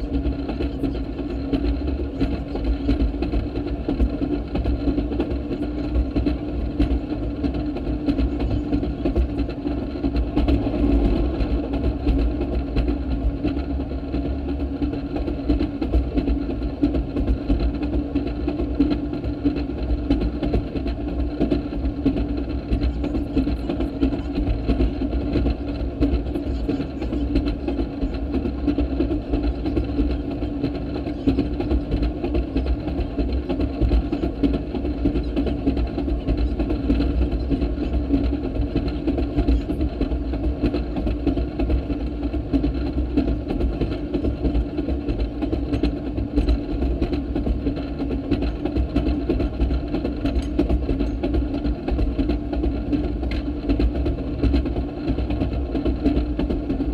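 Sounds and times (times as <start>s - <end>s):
rail motorcar engine droning: 0.0s - 56.9s.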